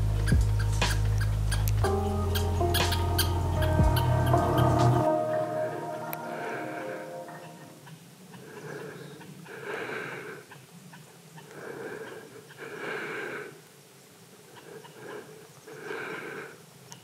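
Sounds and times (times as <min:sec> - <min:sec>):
person breathing slowly: 0:06.1 - 0:07.6, 0:08.4 - 0:10.7, 0:11.4 - 0:13.7, 0:14.5 - 0:16.8.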